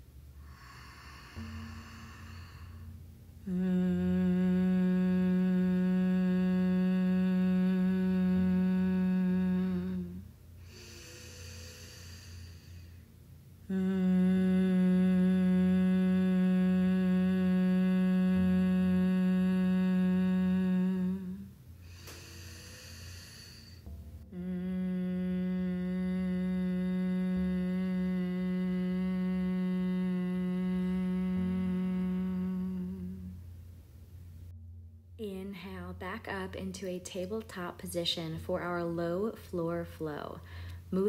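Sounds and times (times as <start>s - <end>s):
woman humming: 0.0s - 12.7s, 13.6s - 33.5s
breath in: 10.6s - 13.0s, 21.8s - 23.8s, 40.4s - 40.9s.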